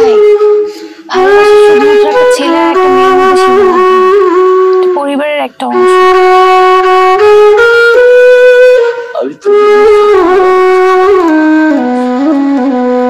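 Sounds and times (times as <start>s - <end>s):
wind instrument slow melody: 0.0s - 13.0s.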